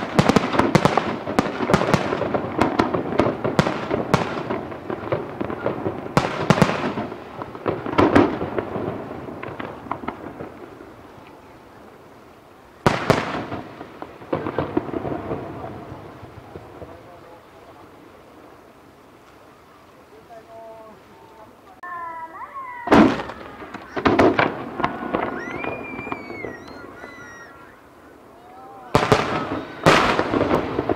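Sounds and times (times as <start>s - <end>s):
sharp loud firework report: 0.0s - 18.8s, 20.2s - 30.9s
fireworks crackling: 0.0s - 30.9s.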